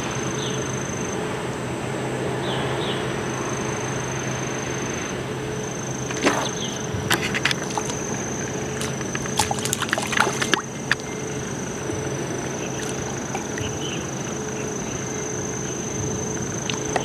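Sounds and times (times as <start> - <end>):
thin high whine: 0.0 - 17.0
fish splashing in water: 6.0 - 17.0.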